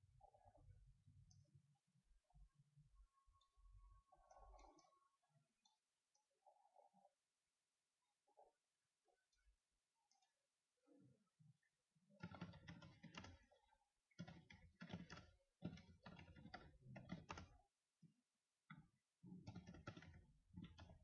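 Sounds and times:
typing on computer keyboard: 0:12.2 - 0:17.6, 0:19.4 - 0:21.0.

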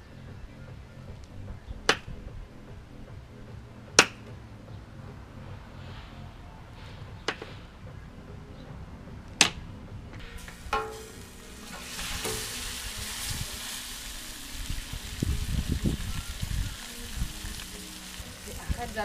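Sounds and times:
lobster sizzling on griddle: 0:10.2 - 0:19.0
metal utensils clinking: 0:10.4 - 0:13.0.

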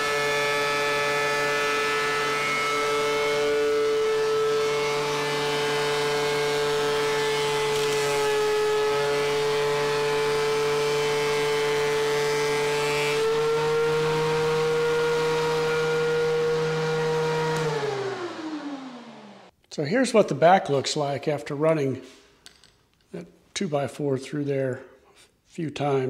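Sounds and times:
planer whining: 0:00.0 - 0:19.5.

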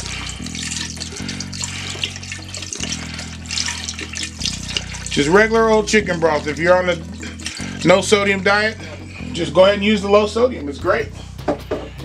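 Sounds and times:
broth pouring into a pot: 0:00.0 - 0:08.2.

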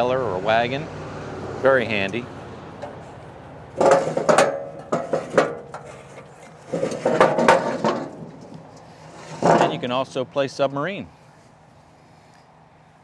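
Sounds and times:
metal chute clanking: 0:03.8 - 0:10.5.

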